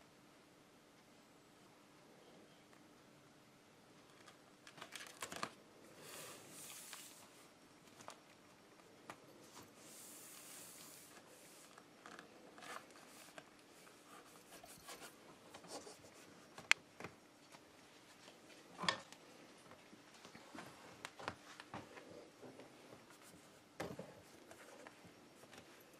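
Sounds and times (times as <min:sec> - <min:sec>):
tape rustling and rasping: 0:09.1 - 0:16.8.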